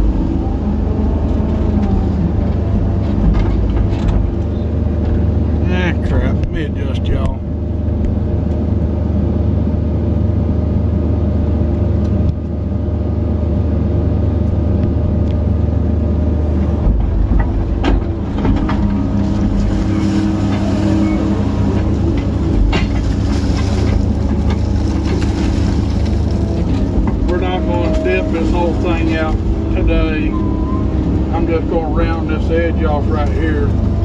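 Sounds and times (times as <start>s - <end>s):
excavator diesel engine drone: 0.0s - 34.0s
clunks: 16.6s - 31.8s.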